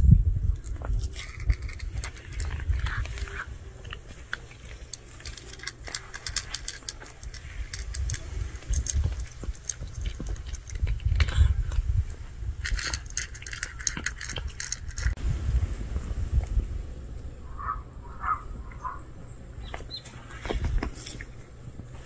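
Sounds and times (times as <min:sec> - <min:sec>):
low steady rumble: 0:00.0 - 0:22.0
cat crunching dry kibble: 0:00.5 - 0:15.2, 0:20.0 - 0:22.0.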